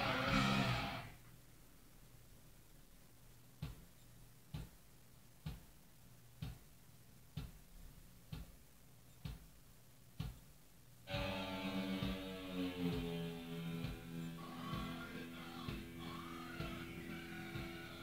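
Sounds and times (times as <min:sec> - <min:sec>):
music: 0:00.0 - 0:01.1, 0:11.1 - 0:18.0
faint low hum: 0:00.0 - 0:18.0.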